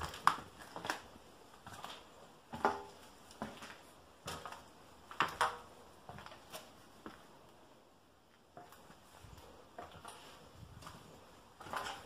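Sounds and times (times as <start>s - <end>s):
footsteps crunching on grit: 8.6s - 12.0s.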